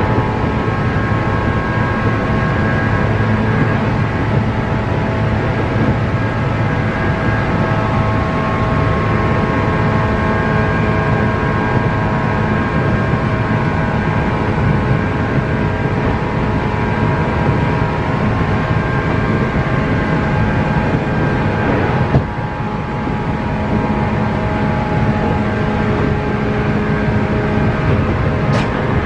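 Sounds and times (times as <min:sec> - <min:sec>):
traction motor whine: 0:00.0 - 0:29.0
wheels rumbling on rail: 0:00.0 - 0:29.0.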